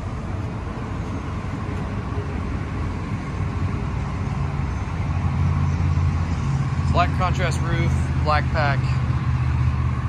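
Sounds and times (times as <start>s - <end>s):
low rumble of outdoor background: 0.0s - 10.0s.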